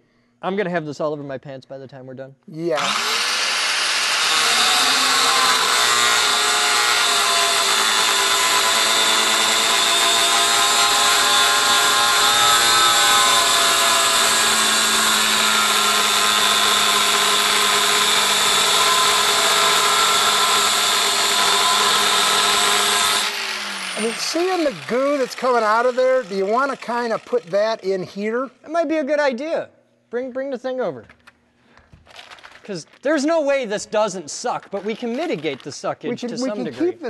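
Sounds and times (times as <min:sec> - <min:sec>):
angle grinder cutting metal: 0:02.8 - 0:28.0.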